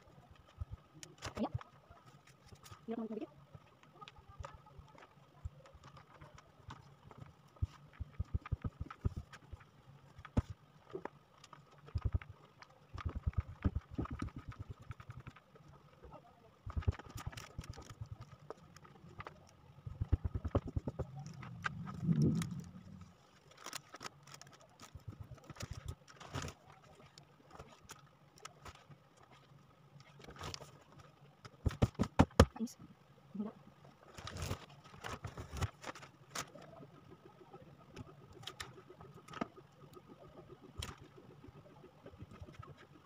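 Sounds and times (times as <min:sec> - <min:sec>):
low steady hum: 0:00.0 - 0:43.0.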